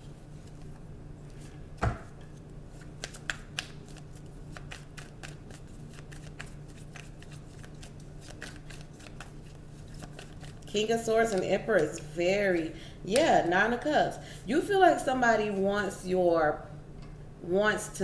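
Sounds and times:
steady low hum: 0:00.0 - 0:18.0
cards being shuffled: 0:00.4 - 0:12.0.

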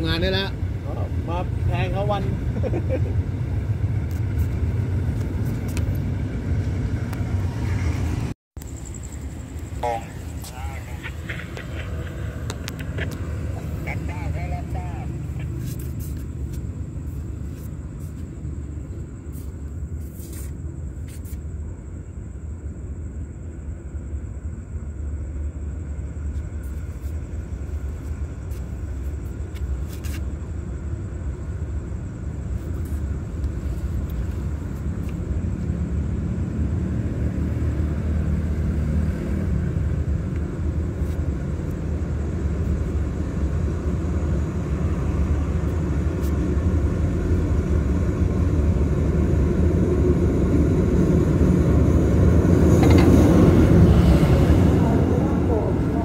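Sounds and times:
locomotive engine rumble: 0:00.0 - 0:21.1, 0:39.9 - 0:56.0.

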